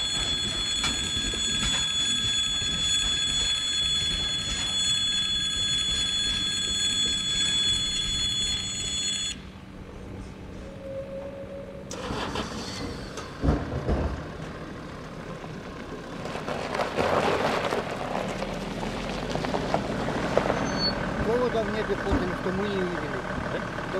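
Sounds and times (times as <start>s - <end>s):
crossing warning tone: 0.0s - 13.4s, 20.4s - 23.9s
road vehicles moving: 0.0s - 23.9s.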